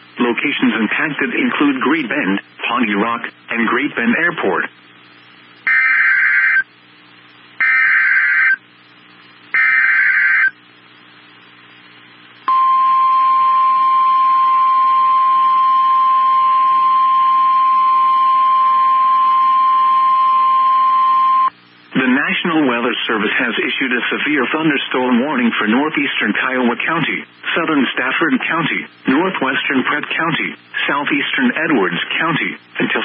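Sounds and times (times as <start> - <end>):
screechy digital data bursts: 5.7 - 6.6, 7.6 - 8.6, 9.5 - 10.6
steady warning alarm tone: 5.7 - 6.7, 7.6 - 8.6, 9.6 - 10.6, 12.5 - 21.5.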